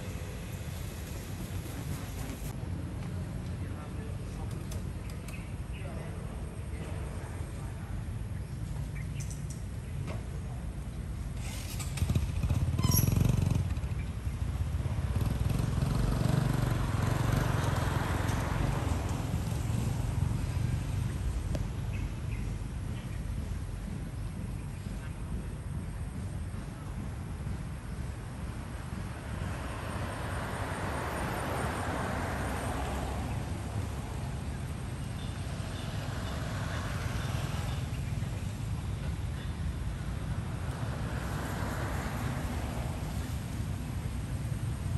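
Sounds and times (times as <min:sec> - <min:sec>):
city traffic rumble: 0:00.0 - 0:44.9
motorcycles passing: 0:11.3 - 0:44.9.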